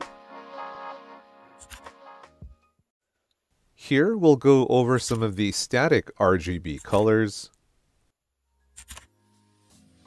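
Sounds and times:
background music with a beat: 0.0s - 2.6s, 9.3s - 10.0s.

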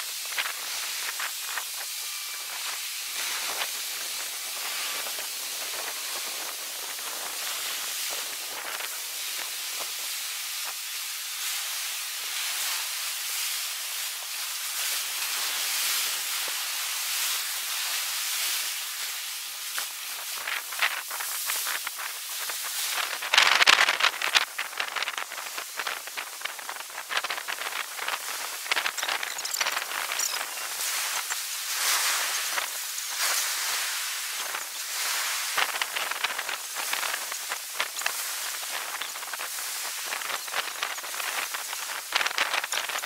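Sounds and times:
surf rushing over beach: 15.0s - 43.0s.

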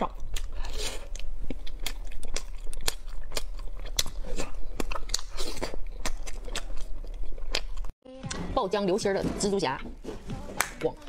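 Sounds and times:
crunchy candy chewing: 0.1s - 8.0s.

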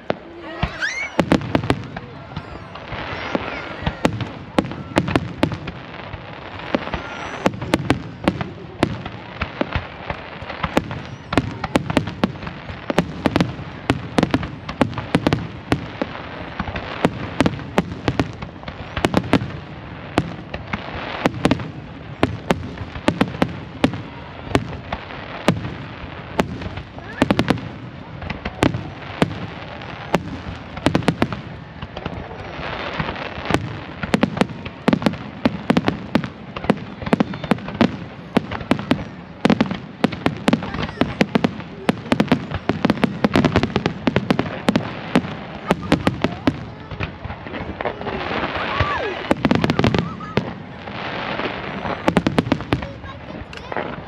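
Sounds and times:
fireworks bangs and crackles: 0.0s - 54.0s.

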